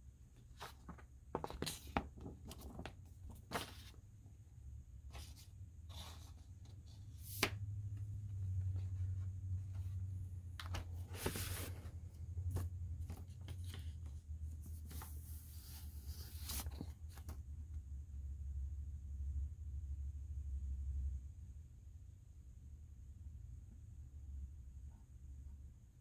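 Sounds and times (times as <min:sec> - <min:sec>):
paper sleeve rustling: 0:00.5 - 0:04.0, 0:10.6 - 0:17.3.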